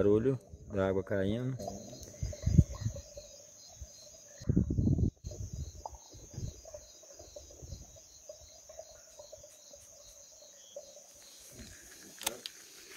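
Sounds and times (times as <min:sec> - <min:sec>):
insects chirping: 0:00.0 - 0:12.9.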